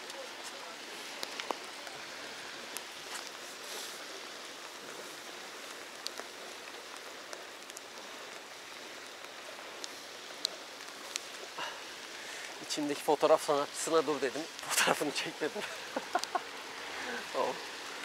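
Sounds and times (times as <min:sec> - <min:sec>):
steady outdoor hiss: 0:00.0 - 0:18.0
faint ticks: 0:05.6 - 0:12.7, 0:16.0 - 0:16.4.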